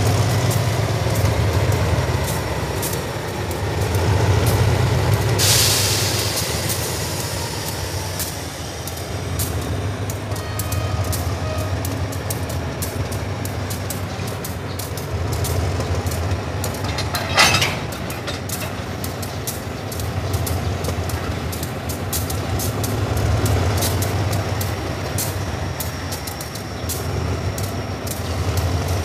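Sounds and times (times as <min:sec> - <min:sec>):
diesel locomotive engine rumbling: 0:00.0 - 0:29.0
sharp hiss: 0:02.1 - 0:16.9
faint clicks: 0:06.2 - 0:29.0.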